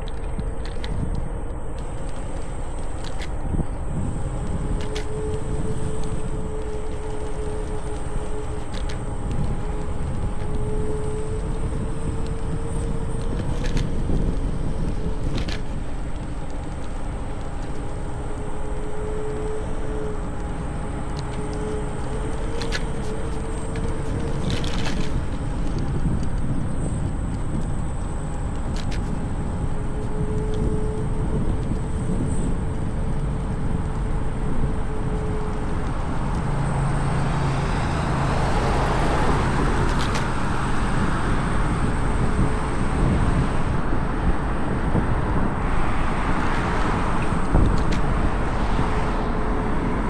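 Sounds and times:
wheels rolling on pavement: 0:00.0 - 0:50.0
wind on microphone: 0:00.0 - 0:50.0.

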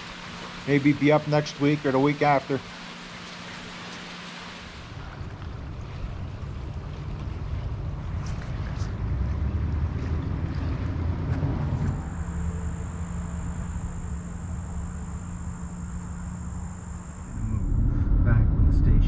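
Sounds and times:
river water rushing: 0:00.0 - 0:05.0
high-pitched insect drone: 0:11.9 - 0:18.0
wind on microphone: 0:17.2 - 0:19.0.

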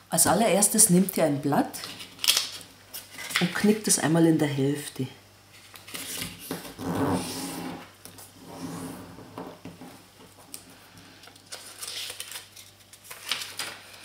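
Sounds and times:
paper rustling and crinkling: 0:05.5 - 0:06.8, 0:11.2 - 0:14.0.

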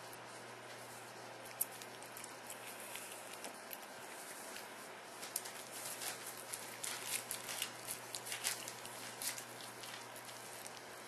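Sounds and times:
puppy chewing and smacking: 0:01.4 - 0:04.7.

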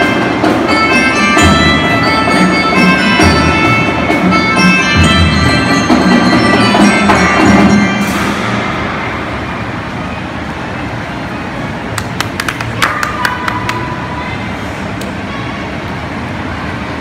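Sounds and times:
marching band playing: 0:00.0 - 0:08.6
crowd hubbub: 0:00.0 - 0:17.0.

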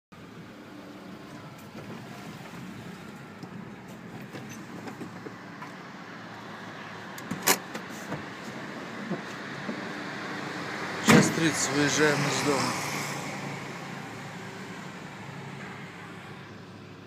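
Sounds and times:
car engine humming: 0:00.2 - 0:17.0.

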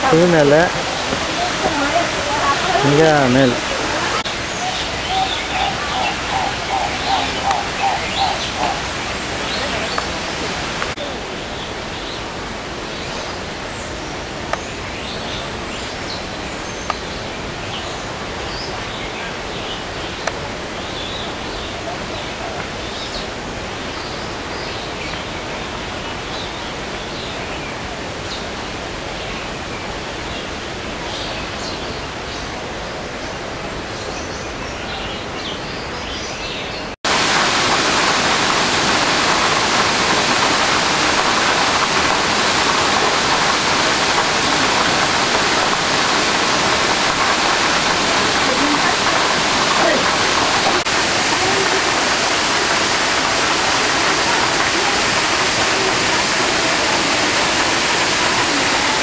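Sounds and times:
steady rushing noise: 0:37.0 - 0:59.0.

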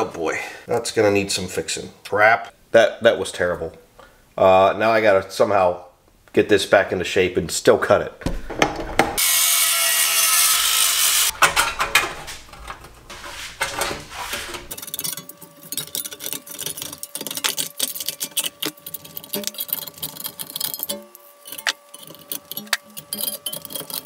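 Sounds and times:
grinder cutting sheet metal: 0:09.2 - 0:11.6, 0:13.1 - 0:24.0.

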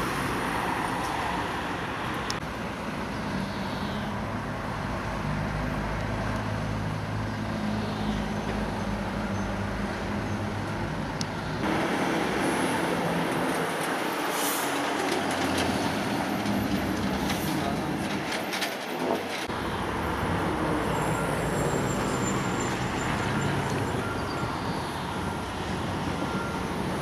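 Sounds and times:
traffic on wet street: 0:00.0 - 0:27.0.

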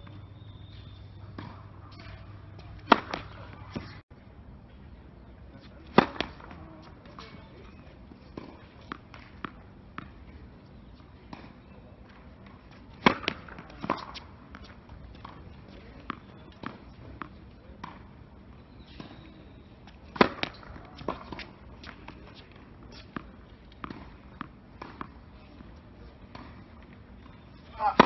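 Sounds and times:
tennis ball bouncing: 0:00.0 - 0:04.0, 0:05.6 - 0:18.1, 0:18.8 - 0:28.0
racket striking tennis ball: 0:00.6 - 0:04.0, 0:05.6 - 0:10.3, 0:11.2 - 0:15.4, 0:18.9 - 0:28.0.

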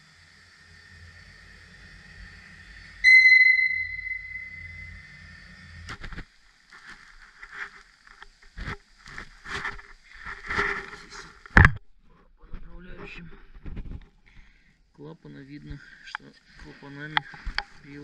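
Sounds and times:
ringing metallic strike: 0:03.0 - 0:05.1.

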